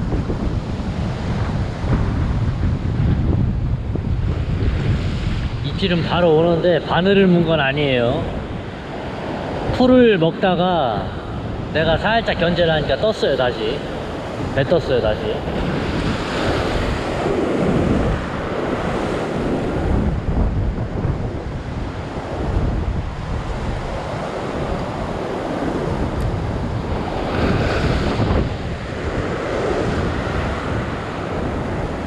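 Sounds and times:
wind buffeting microphone: 0:00.0 - 0:32.0
surf breaking against rocks: 0:15.4 - 0:31.5.

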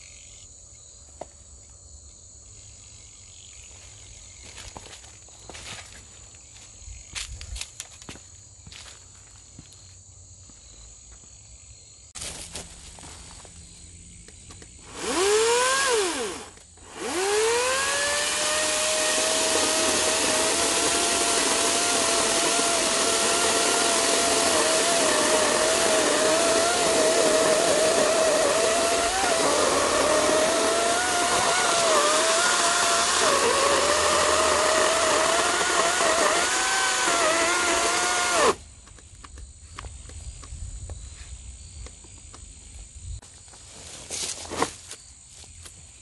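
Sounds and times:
electric chainsaw motor whining: 0:14.8 - 0:38.6.

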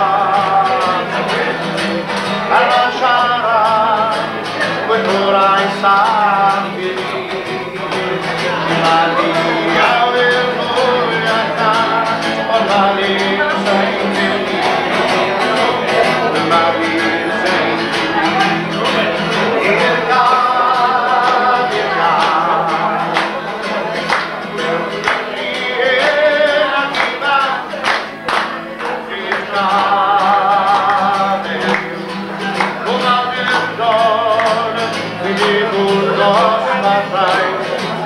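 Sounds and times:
man singing with vibrato: 0:00.0 - 0:38.0
strummed acoustic guitar: 0:00.0 - 0:38.0.

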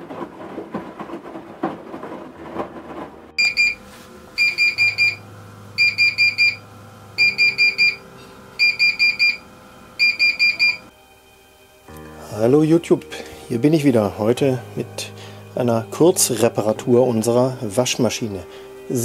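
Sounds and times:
washing machine alarm beeps: 0:03.4 - 0:10.9.

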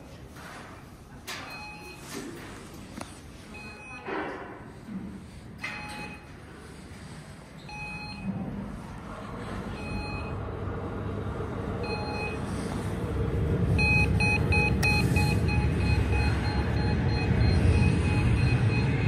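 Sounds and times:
low rumble: 0:07.7 - 0:19.0.

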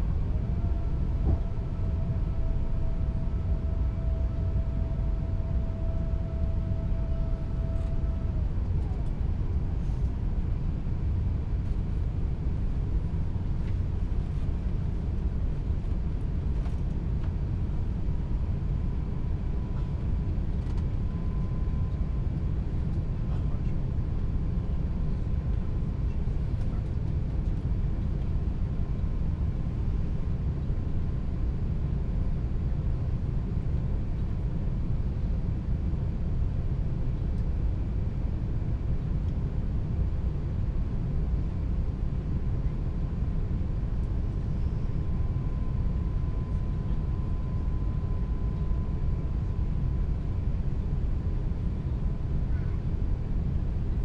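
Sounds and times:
faint steady tone: 0:00.0 - 0:16.0, 0:17.5 - 0:26.7, 0:36.7 - 0:54.0
airplane cabin rumble: 0:00.0 - 0:54.0.

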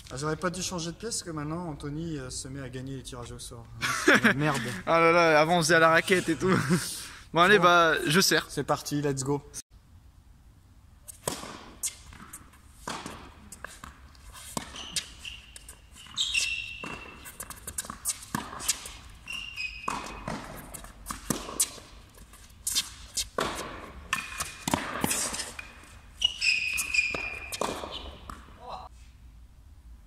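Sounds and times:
tennis ball hits: 0:11.1 - 0:22.0, 0:22.7 - 0:28.6
sneaker squeaks: 0:11.1 - 0:28.9.

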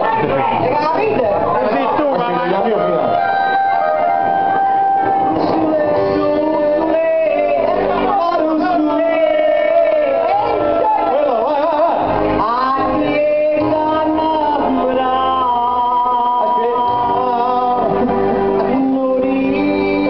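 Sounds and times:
instrumental backing: 0:00.0 - 0:20.0
woman singing through pa speaker: 0:04.3 - 0:20.0.

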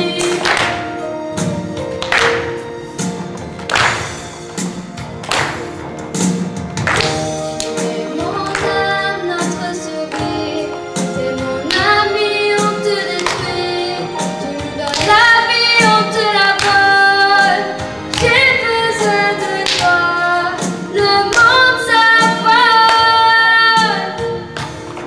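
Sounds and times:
instrumental accompaniment: 0:00.0 - 0:25.0
girls singing: 0:07.7 - 0:24.3.

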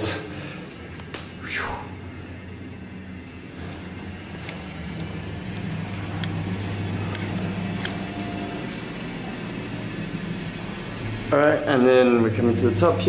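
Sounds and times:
low steady hum: 0:00.0 - 0:13.0
footsteps on tiled stairs: 0:00.8 - 0:01.4.

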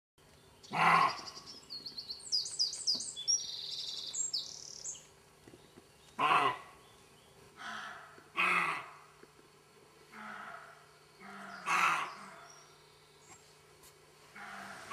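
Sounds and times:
bird chirping and trilling: 0:00.5 - 0:06.2
deer barking: 0:00.7 - 0:01.3, 0:06.2 - 0:06.8, 0:07.6 - 0:09.0, 0:10.1 - 0:12.5, 0:14.3 - 0:14.9.

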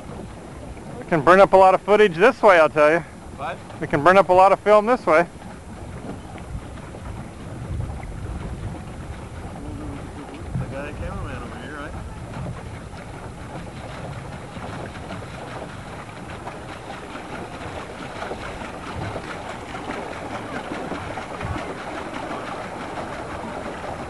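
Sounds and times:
choppy lake water lapping: 0:00.0 - 0:24.0
wind rumble on microphone: 0:05.0 - 0:24.0.

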